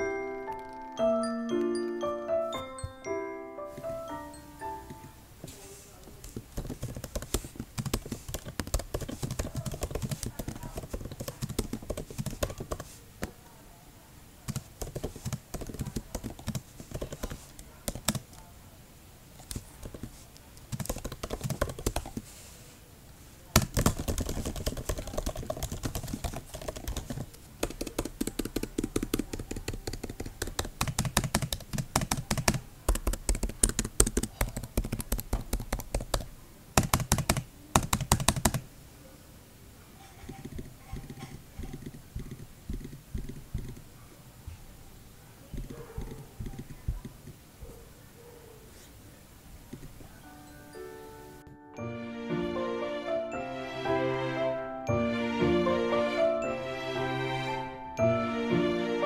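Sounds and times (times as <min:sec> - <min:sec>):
keyboard key clicks: 0:23.6 - 0:38.6.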